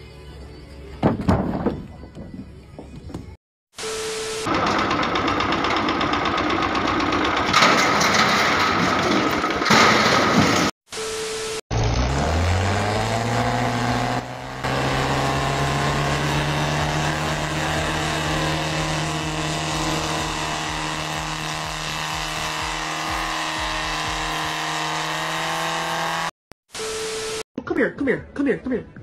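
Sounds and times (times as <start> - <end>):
car engine revving: 11.7 - 26.4.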